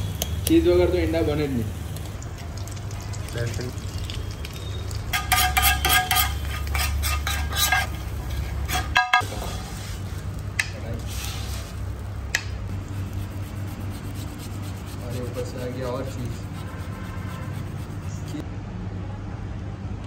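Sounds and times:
metal spatula scraping on griddle: 5.1 - 10.2, 11.0 - 11.8
steady low hum: 11.7 - 18.9.

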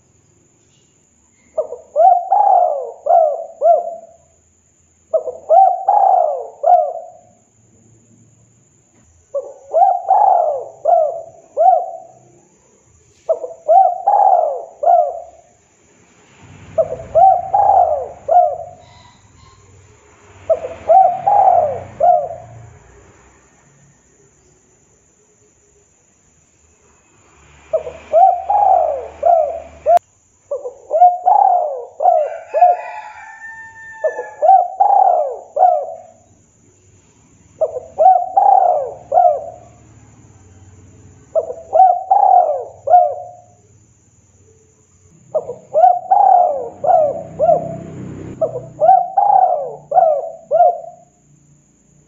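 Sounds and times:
dove cooing: 1.6 - 4.3, 5.1 - 7.4, 9.3 - 12.4, 13.2 - 15.6, 16.7 - 19.8, 20.5 - 22.8, 27.7 - 36.3, 37.6 - 39.9, 41.3 - 43.6, 45.3 - 51.2.

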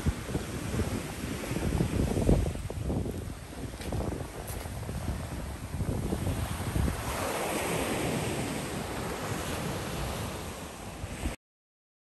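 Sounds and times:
surf breaking over rocks: 0.0 - 11.4
wind on microphone: 0.0 - 11.4.

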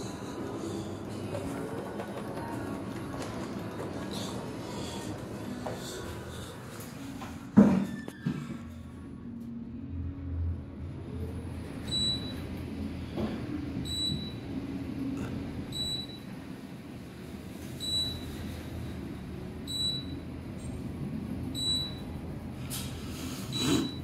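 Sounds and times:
elevator low hum: 0.0 - 24.0
elevator short high beep: 11.8 - 12.4, 13.8 - 14.5, 15.7 - 16.3, 17.8 - 18.4, 19.7 - 20.3, 21.6 - 22.1, 23.5 - 24.0.

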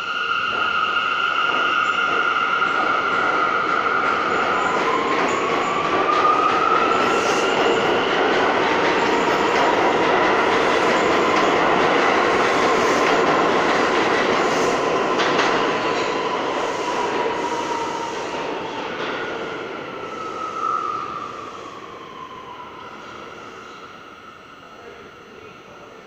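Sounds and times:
high train whine: 0.0 - 26.0
train wheels clattering on rails: 0.4 - 20.2.

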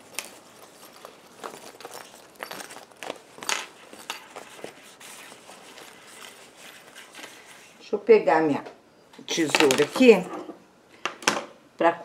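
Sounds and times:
plastic pouch crinkling and rustling: 0.0 - 7.8.

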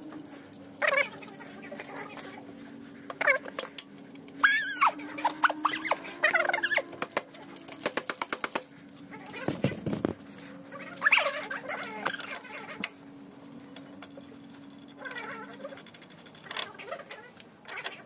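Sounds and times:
faint steady hum: 0.0 - 18.0
high squeaks: 4.4 - 7.8.

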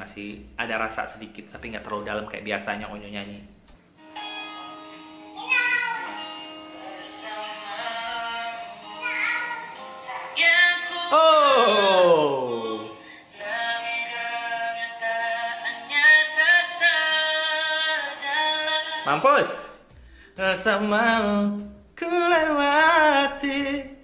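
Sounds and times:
acoustic guitar: 0.0 - 24.0
male voices singing pop ballad: 10.4 - 19.2, 20.3 - 24.0.

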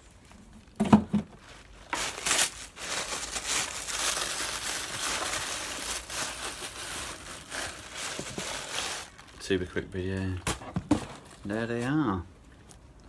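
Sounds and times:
tissue paper crinkling: 1.4 - 9.8.

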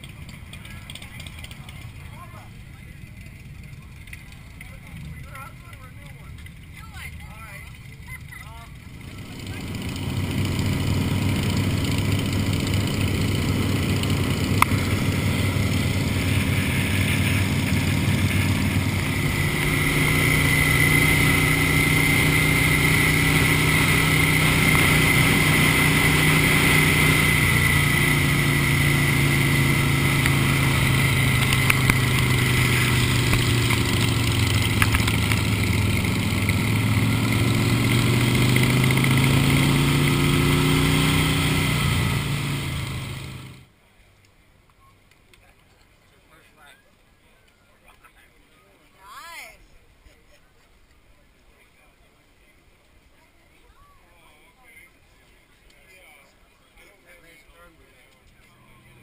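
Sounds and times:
motorcycle engine running: 0.0 - 43.7.

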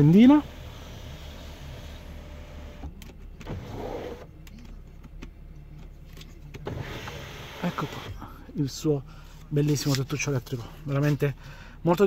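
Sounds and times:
sunroof motor whirring: 0.0 - 4.3, 6.6 - 8.2.

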